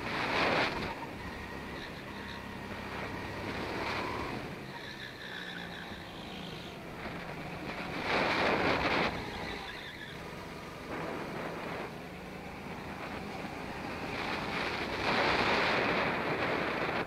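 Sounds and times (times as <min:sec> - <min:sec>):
go-kart engine running: 0:00.0 - 0:17.0
wind buffeting microphone: 0:06.7 - 0:17.0.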